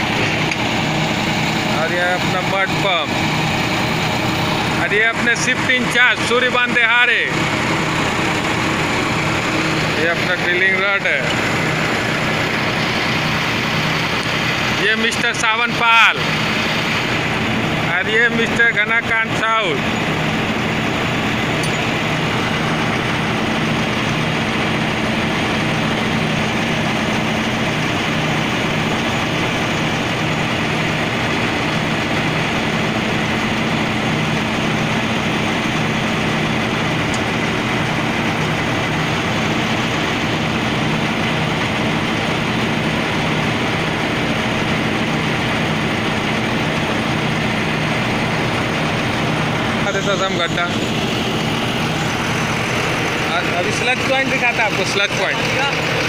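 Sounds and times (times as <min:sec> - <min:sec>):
drilling rig engine running: 0:00.0 - 0:56.0.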